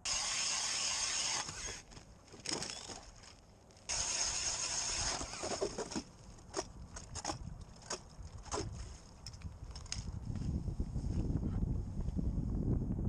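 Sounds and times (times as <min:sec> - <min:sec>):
ice auger drilling through ice: 0:00.0 - 0:01.9, 0:03.9 - 0:06.1.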